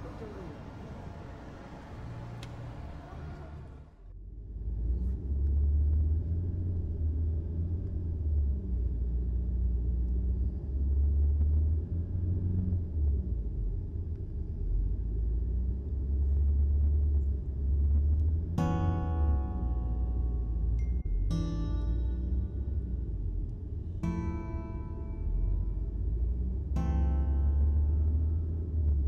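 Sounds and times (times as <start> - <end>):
car cabin road rumble: 0.0 - 29.0.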